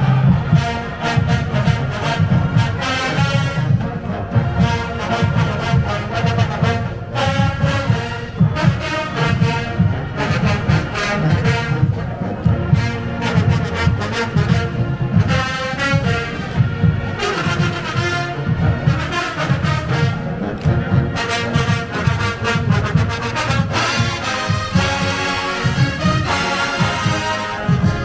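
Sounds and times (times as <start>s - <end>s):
bass drums and percussion: 0.0s - 28.0s
marching band brass: 0.0s - 28.0s.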